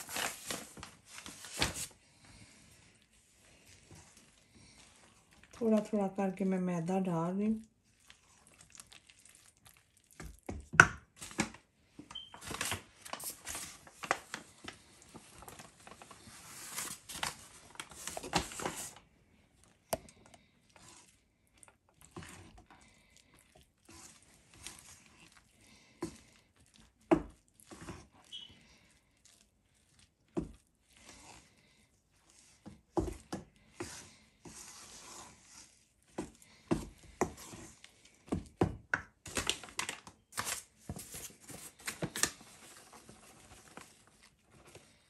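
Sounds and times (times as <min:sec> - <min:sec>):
spoon scraping dough in bowl: 0:23.5 - 0:26.3, 0:32.2 - 0:38.1.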